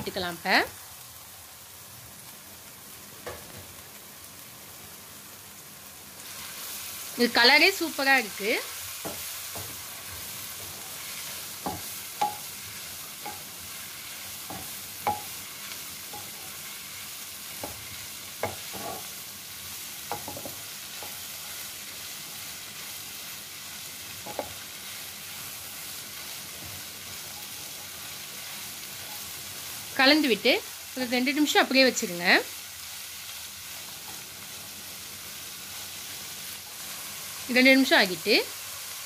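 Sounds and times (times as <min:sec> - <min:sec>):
vegetables sizzling in oil: 0:00.0 - 0:39.0
spatula knocking and scraping pan: 0:09.0 - 0:12.5, 0:13.2 - 0:13.5, 0:14.4 - 0:15.4, 0:16.0 - 0:16.6, 0:17.5 - 0:19.1, 0:20.1 - 0:21.3, 0:24.2 - 0:24.6.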